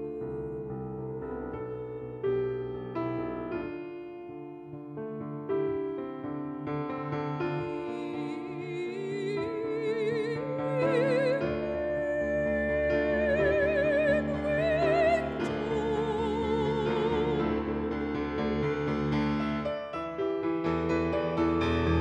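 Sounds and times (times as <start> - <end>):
woman singing opera: 0.0 - 2.3, 7.5 - 17.9
grand piano: 0.0 - 22.0.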